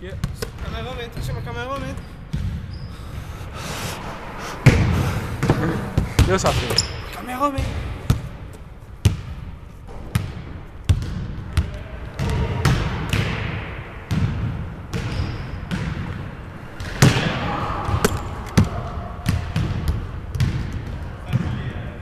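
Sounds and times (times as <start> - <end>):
basketball bouncing on hardwood floor: 1.8 - 2.7, 10.1 - 11.4, 14.1 - 16.2.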